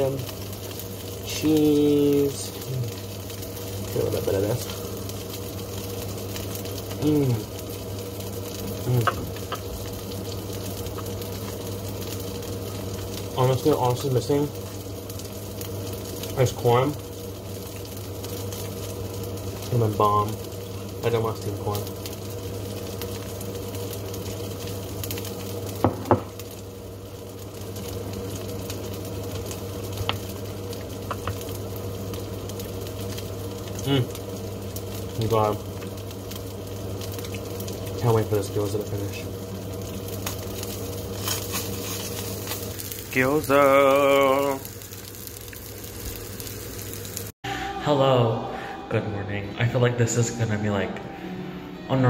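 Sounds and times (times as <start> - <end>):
dumplings sizzling in a pan: 0.0 - 47.4
low steady hum: 0.0 - 52.0
person humming while eating: 8.8 - 9.2.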